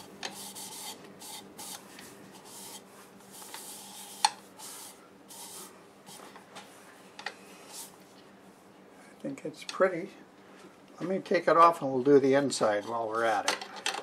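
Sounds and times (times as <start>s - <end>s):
paper towel rubbing wood: 0.0s - 1.8s, 2.4s - 6.3s.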